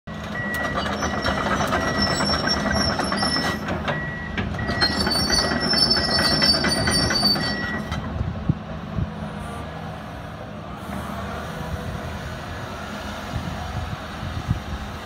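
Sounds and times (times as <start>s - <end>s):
steel tracks clanking and squealing: 0.1s - 8.2s
diesel engine running: 0.1s - 15.0s
travel alarm beeping: 0.4s - 8.0s.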